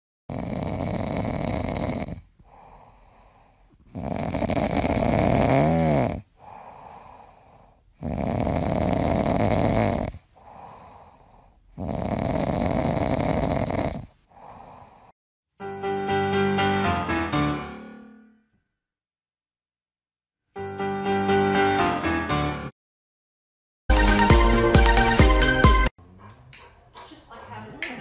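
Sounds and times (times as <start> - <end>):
dog snoring: 0.3 - 15.1.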